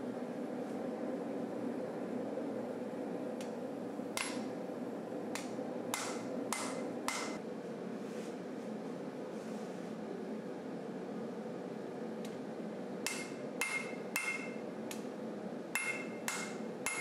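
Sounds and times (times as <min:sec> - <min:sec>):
hammer striking metal on anvil: 0:04.2 - 0:04.5, 0:05.4 - 0:07.4, 0:13.1 - 0:14.6, 0:15.8 - 0:17.0.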